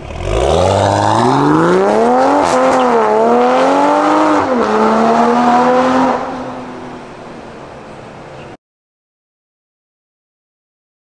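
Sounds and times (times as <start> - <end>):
car engine accelerating hard: 0.0 - 7.3.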